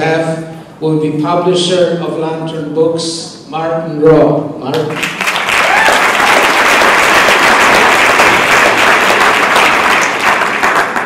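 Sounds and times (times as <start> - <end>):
crowd applauding: 4.9 - 11.0.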